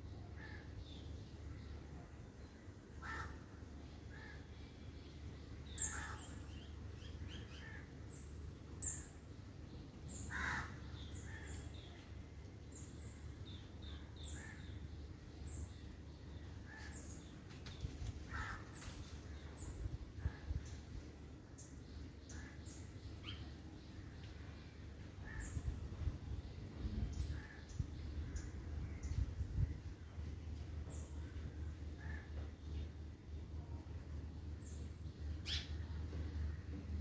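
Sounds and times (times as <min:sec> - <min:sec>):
birds chirping: 0:00.0 - 0:19.8
faint low hum: 0:00.0 - 0:37.0.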